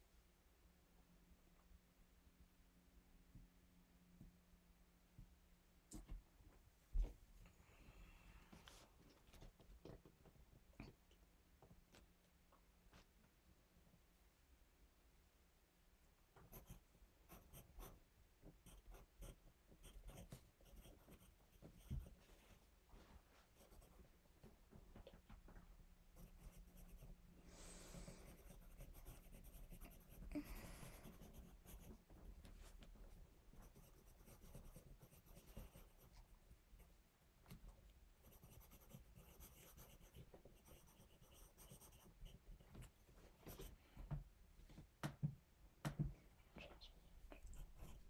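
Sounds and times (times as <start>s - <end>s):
pencil scratching on paper: 16.5s - 18.0s, 18.6s - 22.2s, 23.5s - 24.0s, 26.2s - 32.1s, 33.6s - 36.2s, 38.2s - 43.8s.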